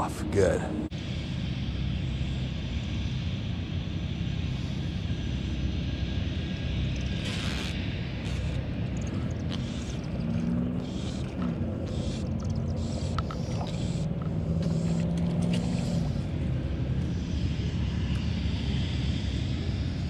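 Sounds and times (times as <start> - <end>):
engine drone: 0.0 - 20.0
low rumble: 0.0 - 20.0
faint clicks: 12.4 - 16.1.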